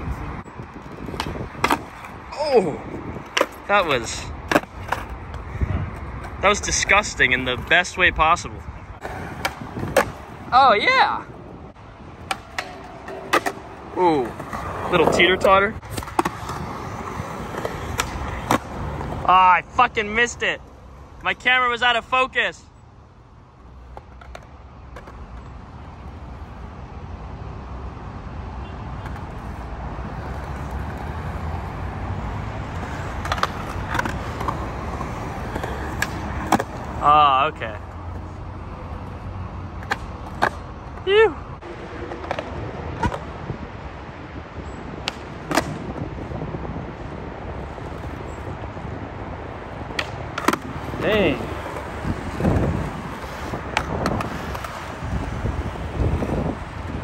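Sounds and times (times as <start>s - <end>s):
skateboard wheels rolling on concrete: 0.0s - 57.0s
skateboard clacks: 0.6s - 2.1s, 3.2s - 7.7s, 9.0s - 10.4s, 12.2s - 19.3s, 23.9s - 25.6s, 32.7s - 37.1s, 39.8s - 41.1s, 41.8s - 43.4s, 45.0s - 46.3s, 49.6s - 57.0s.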